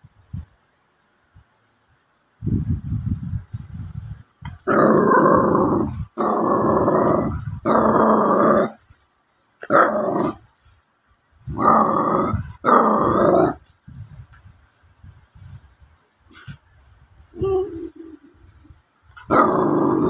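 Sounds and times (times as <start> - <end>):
puppy growling: 4.6 - 8.8, 9.6 - 10.5, 11.5 - 13.7, 19.2 - 20.0.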